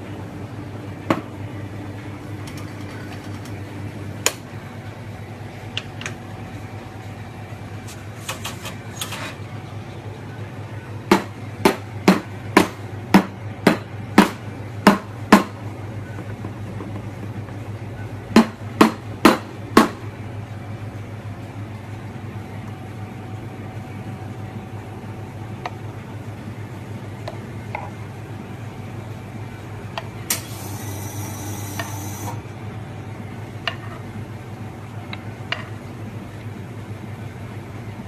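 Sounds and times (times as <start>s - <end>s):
espresso machine humming: 0.0s - 11.0s, 12.9s - 38.0s.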